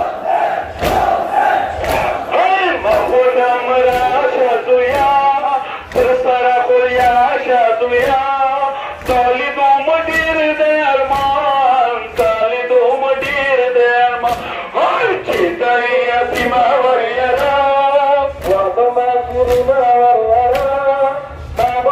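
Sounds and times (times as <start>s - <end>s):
men chanting a lament: 0.0s - 21.9s
chest-beating slaps: 0.6s - 19.8s, 20.4s - 20.8s.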